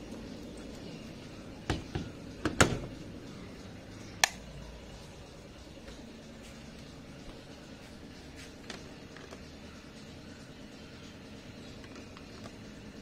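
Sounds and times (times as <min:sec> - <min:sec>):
washing machine door knocks: 0:01.6 - 0:03.0.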